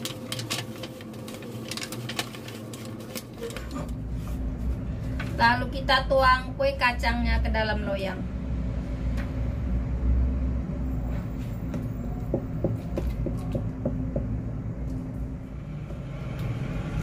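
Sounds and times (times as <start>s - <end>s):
steady low rumble: 3.9s - 12.7s.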